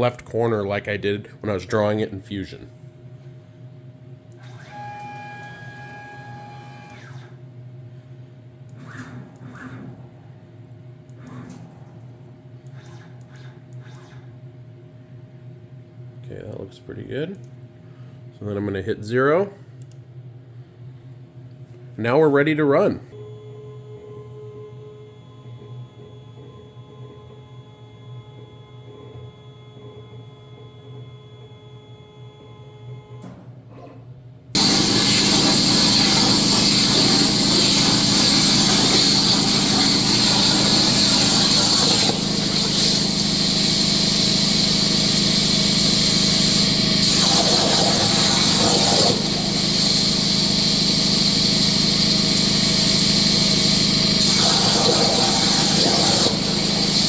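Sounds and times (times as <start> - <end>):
plasma torch cutting steel hiss: 34.6 - 57.0.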